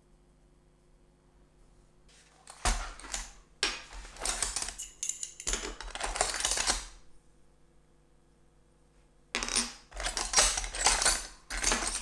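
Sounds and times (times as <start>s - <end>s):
metal offcuts clattering and clinking: 9.4s - 12.0s.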